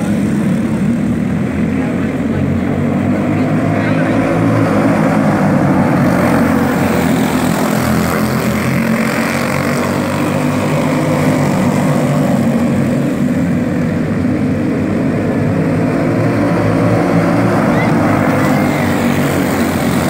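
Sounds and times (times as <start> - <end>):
go-kart engines droning: 0.0 - 20.0.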